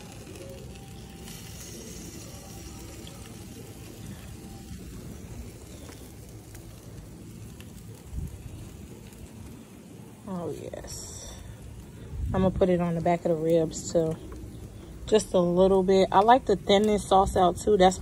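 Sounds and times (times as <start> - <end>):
sauce sizzling on grill: 0.0 - 18.0.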